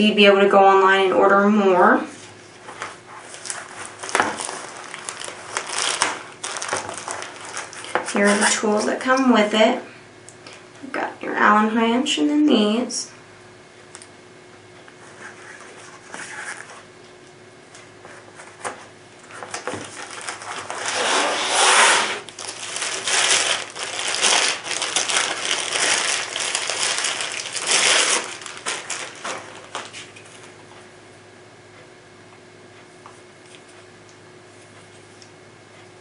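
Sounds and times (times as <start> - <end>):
plastic bag crinkling: 3.1 - 8.6, 19.3 - 30.5.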